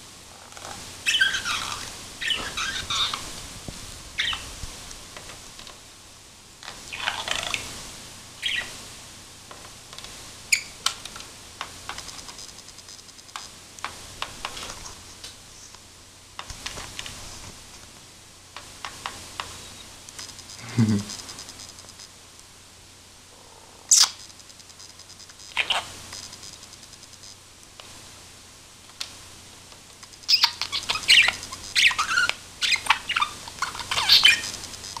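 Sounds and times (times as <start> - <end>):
budgie chirping: 1.0 - 3.2, 4.2 - 4.5, 6.9 - 7.7, 8.4 - 8.7, 10.5 - 10.8, 23.5 - 26.6, 30.1 - 35.0.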